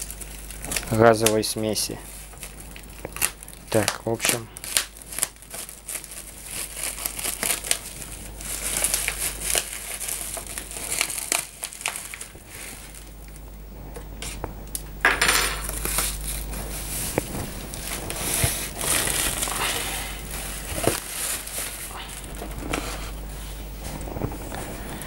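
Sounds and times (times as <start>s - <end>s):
plastic bag crinkling: 0.0s - 13.5s, 15.6s - 25.0s
rustling: 4.7s - 13.2s, 15.8s - 25.0s.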